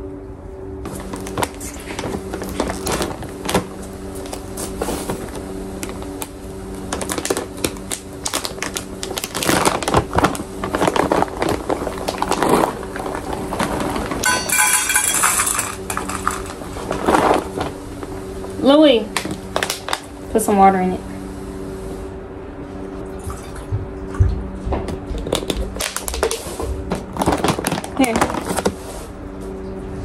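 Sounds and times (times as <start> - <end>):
plastic bag crinkling: 0.9 - 20.2, 25.2 - 29.0
dry food rattling: 6.9 - 17.7.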